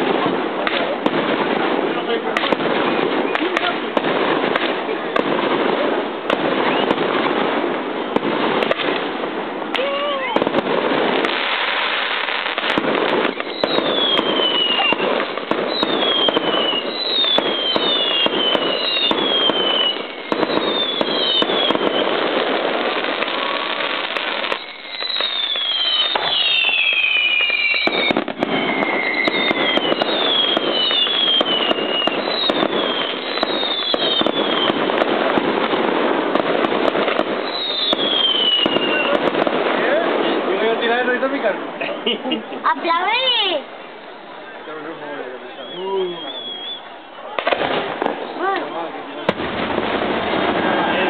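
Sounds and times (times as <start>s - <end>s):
fireworks rattling bangs: 0.0s - 51.0s
falling firework whistles: 2.4s - 9.1s, 9.7s - 40.4s, 45.4s - 48.3s.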